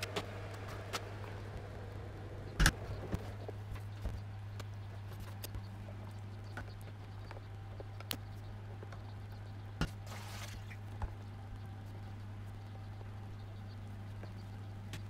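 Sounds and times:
small ticks and pops: 2.5 - 10.0.

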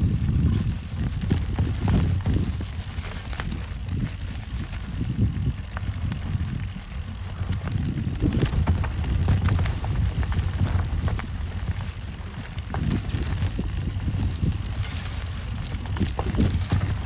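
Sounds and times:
bike clicking and rattling: 0.0 - 17.0
bike tyres on trail: 0.0 - 17.0
wind on microphone: 0.0 - 17.0.

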